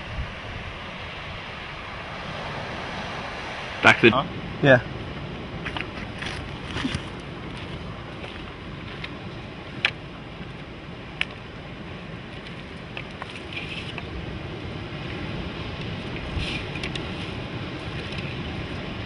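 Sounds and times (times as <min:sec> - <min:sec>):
steady outdoor rush: 0:00.0 - 0:19.0
footsteps on rocky ground: 0:05.6 - 0:10.0.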